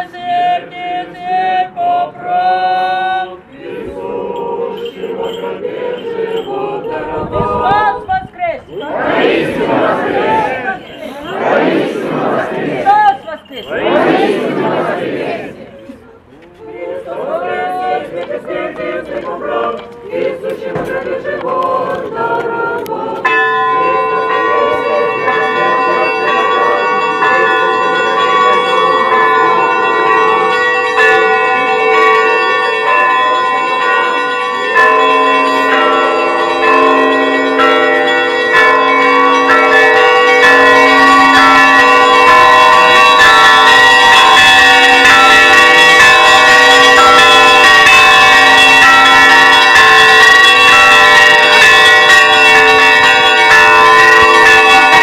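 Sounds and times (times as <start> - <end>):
church bells ringing: 0.0 - 55.0
low bell strokes: 3.6 - 8.0, 8.6 - 15.7, 16.6 - 55.0.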